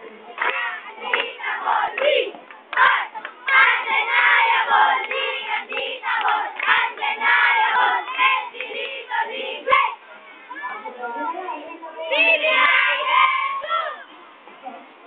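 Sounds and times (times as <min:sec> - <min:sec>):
crowd of children yelling: 0:12.1 - 0:14.2.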